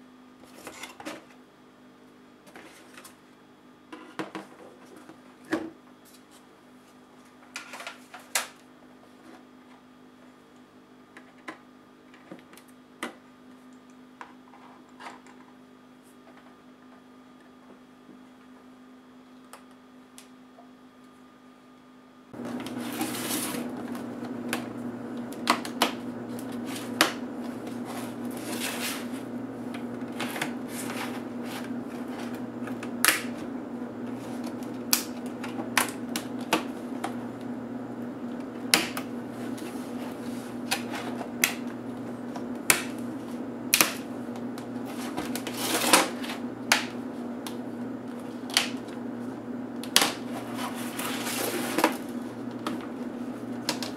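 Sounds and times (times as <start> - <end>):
steady low hum: 22.2 - 53.9.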